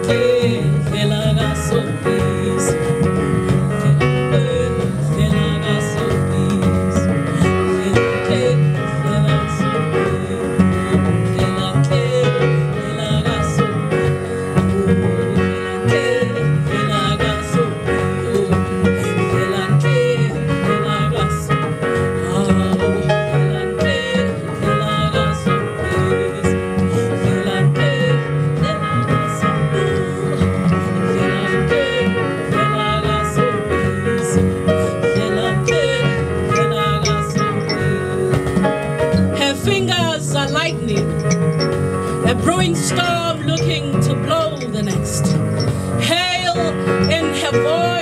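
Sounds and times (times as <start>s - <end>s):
double bass: 0.0s - 48.0s
woman singing: 0.0s - 48.0s
plucked mbira: 33.0s - 48.0s.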